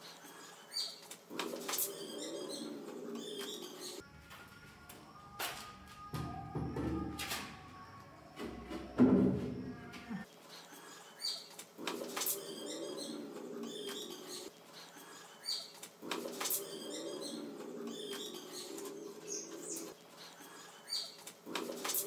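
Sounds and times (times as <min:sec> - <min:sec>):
pigeons cooing: 0:01.3 - 0:04.0, 0:11.8 - 0:14.5, 0:16.0 - 0:20.8.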